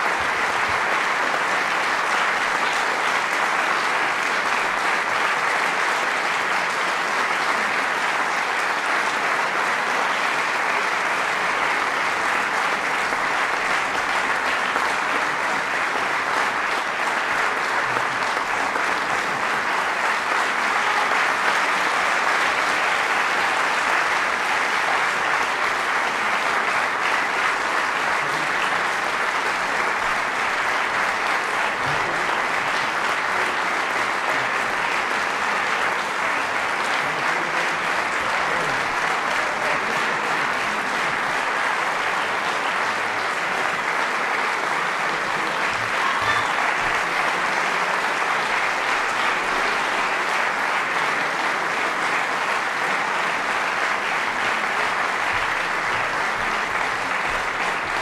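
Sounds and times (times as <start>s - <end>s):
audience applauding: 0.0s - 58.0s.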